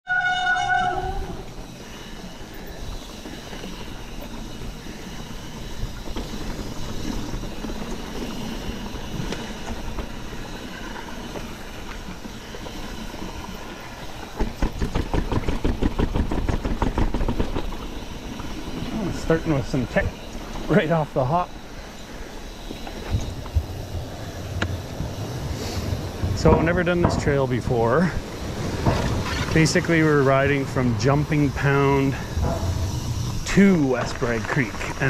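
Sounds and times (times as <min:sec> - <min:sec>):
bike rattling over rough ground: 0:00.1 - 0:35.0
bike tyre and wind rush: 0:00.1 - 0:35.0.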